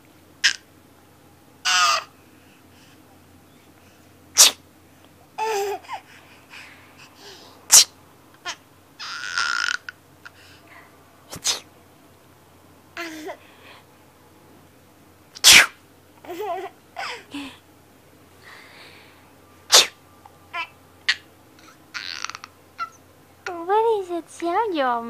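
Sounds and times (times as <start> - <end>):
baby laughing: 1.6 - 2.1, 5.4 - 6.7, 8.4 - 10.0, 16.2 - 17.6, 20.6 - 23.0
adult sneezing: 4.4 - 4.6, 7.7 - 8.0, 11.3 - 11.7, 15.4 - 15.8, 19.7 - 20.0.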